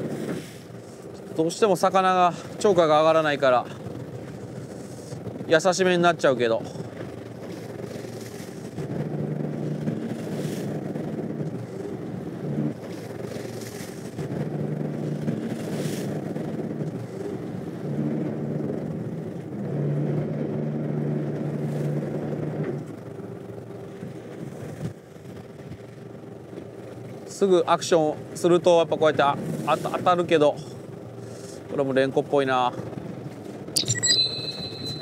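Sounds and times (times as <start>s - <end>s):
boat engine humming: 0.0s - 35.0s
wave wash swishes: 9.6s - 11.0s.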